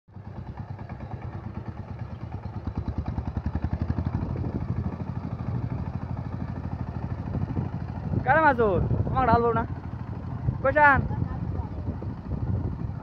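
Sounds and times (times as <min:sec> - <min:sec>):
diesel engine chugging under load: 0:00.1 - 0:13.0.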